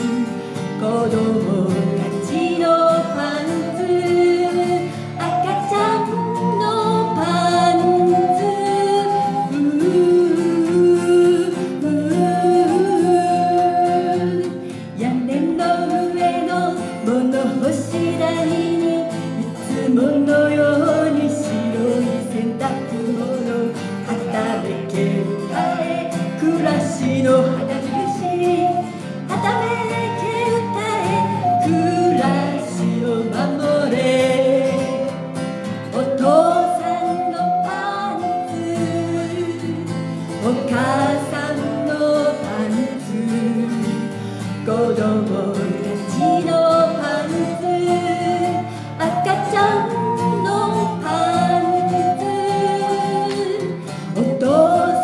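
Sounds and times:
strummed acoustic guitars: 0.0 - 55.0
woman singing: 0.0 - 55.0
harmonica playing: 1.9 - 9.7, 24.0 - 33.6, 34.2 - 42.6, 46.2 - 55.0.

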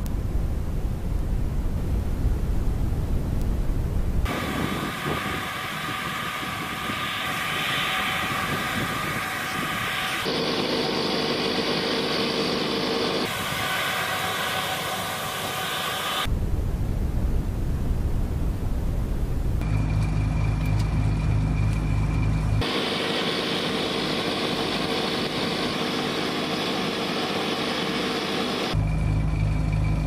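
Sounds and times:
vehicle machinery noise: 4.2 - 16.3, 19.6 - 30.0.

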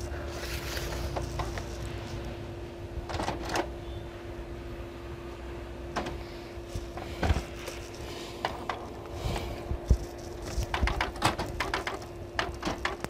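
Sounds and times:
faint hum: 0.0 - 13.0
printer mechanical clicks and knocks: 3.1 - 3.7, 10.5 - 13.0.

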